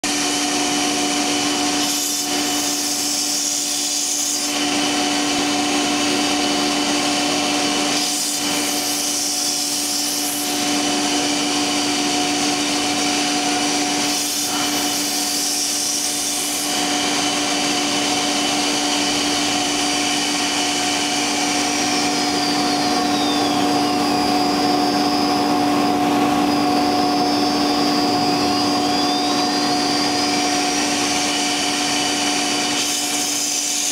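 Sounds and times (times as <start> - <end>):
router spindle motor whine: 0.0 - 33.9
bit cutting wood hiss: 1.6 - 4.6, 7.9 - 10.7, 13.8 - 17.4.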